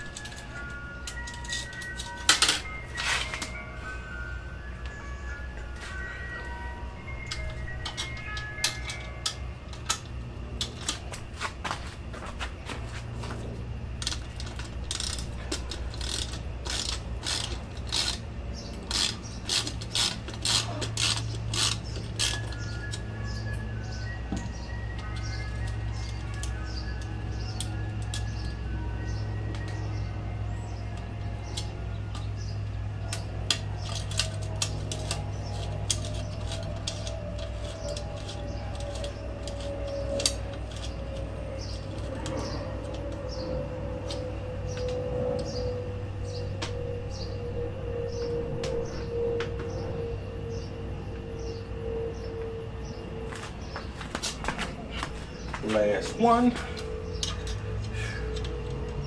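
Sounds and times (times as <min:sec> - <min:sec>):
steady low hum: 0:00.0 - 0:59.0
socket ratchet clicking: 0:14.0 - 0:23.0.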